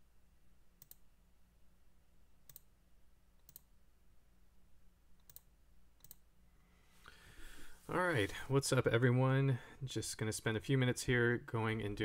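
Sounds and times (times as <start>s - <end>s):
faint low electrical hum: 0.0s - 12.0s
computer mouse clicks: 0.8s - 1.1s, 2.4s - 2.7s, 3.4s - 3.7s, 5.2s - 6.3s.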